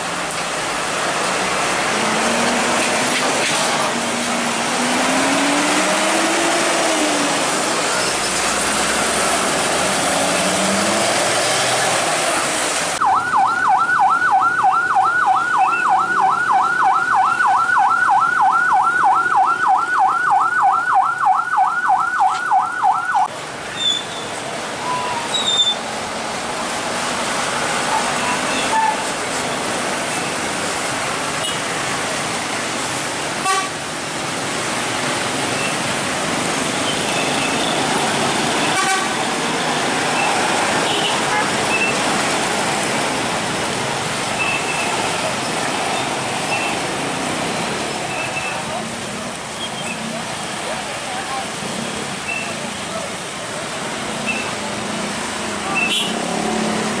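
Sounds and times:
road traffic noise: 0:00.0 - 0:57.0
electronic siren yelping: 0:13.0 - 0:23.3.

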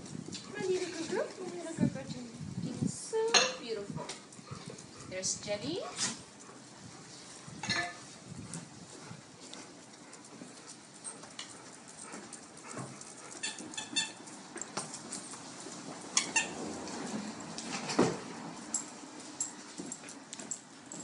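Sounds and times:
dogs whimpering: 0:10.0 - 0:14.4.

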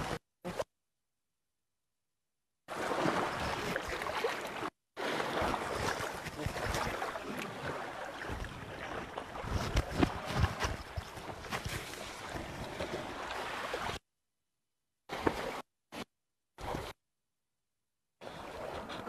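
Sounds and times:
water splashing: 0:02.7 - 0:14.0, 0:15.1 - 0:17.0.

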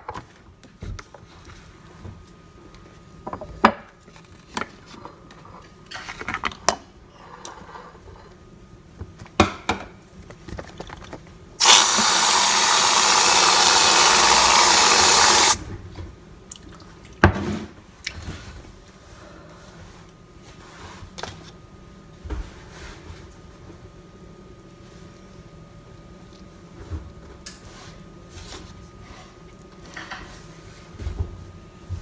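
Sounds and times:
whipped cream can spraying: 0:11.6 - 0:15.6.

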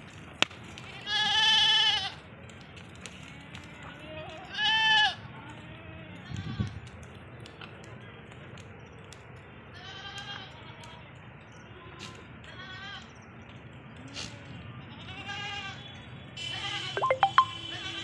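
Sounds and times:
goats bleating: 0:00.9 - 0:02.2, 0:04.4 - 0:05.2, 0:14.9 - 0:15.8, 0:16.4 - 0:17.0.

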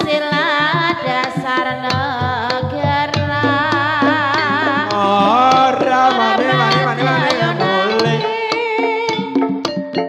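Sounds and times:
hand drum strokes: 0:00.0 - 0:09.8
bronze kettle gong notes: 0:03.3 - 0:08.2
woman singing long note: 0:03.3 - 0:08.4.

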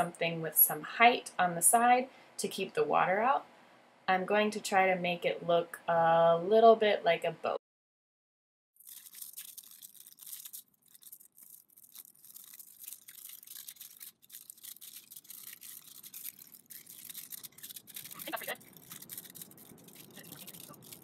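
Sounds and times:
aluminium foil crinkling: 0:08.8 - 0:21.0.

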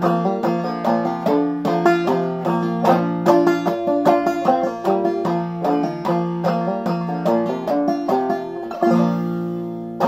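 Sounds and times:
banjo chord ringing: 0:00.0 - 0:10.0
banjo plucked melody: 0:00.0 - 0:10.0.

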